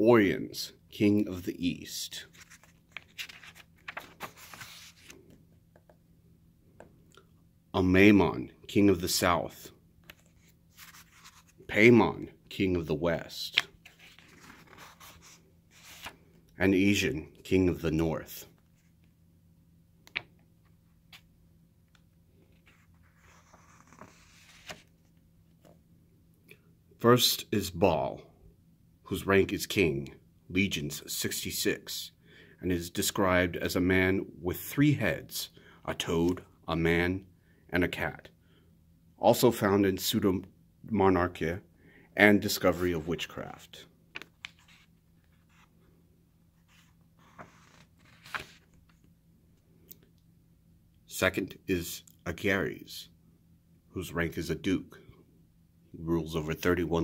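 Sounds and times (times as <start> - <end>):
book page being turned: 2.2 - 5.4, 10.0 - 11.7, 13.5 - 16.2, 22.5 - 25.8, 44.1 - 45.7, 46.6 - 49.1.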